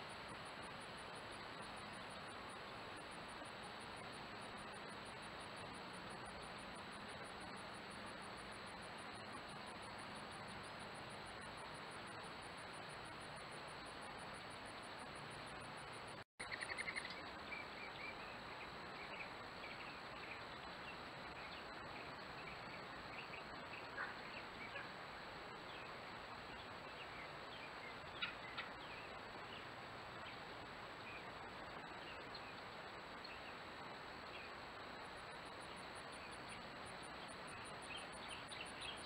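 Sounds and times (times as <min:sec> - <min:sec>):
high insect tone: 0:00.0 - 0:39.0
steady hiss: 0:00.0 - 0:39.0
bird chirps: 0:16.4 - 0:25.0, 0:25.8 - 0:30.4.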